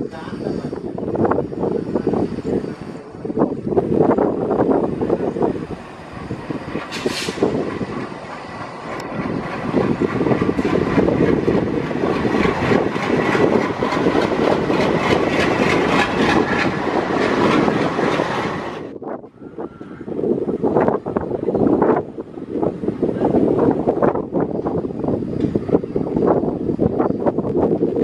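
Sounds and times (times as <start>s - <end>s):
diesel locomotive engine: 0.0s - 28.0s
wheels clattering on rails: 5.3s - 18.9s.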